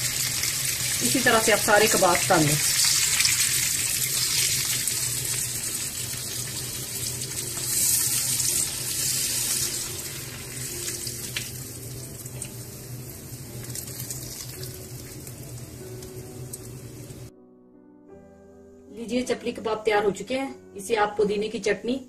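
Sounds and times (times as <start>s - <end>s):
kebabs frying in oil: 0.0s - 17.3s.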